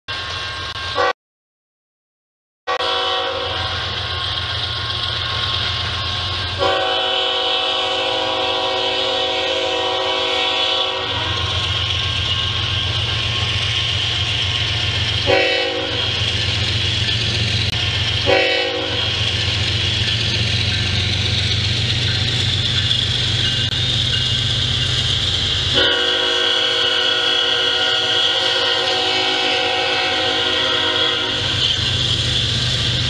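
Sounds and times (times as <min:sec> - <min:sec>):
low rumble of train: 0:00.1 - 0:01.1, 0:02.7 - 0:33.0
train air horn blasts: 0:02.7 - 0:03.9, 0:06.6 - 0:11.6, 0:15.2 - 0:16.2, 0:18.2 - 0:19.2, 0:25.7 - 0:31.7.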